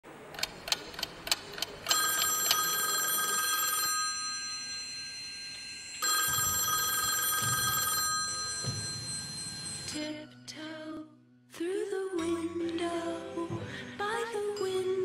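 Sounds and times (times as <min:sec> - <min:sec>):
bell ringing: 0:01.9 - 0:10.4.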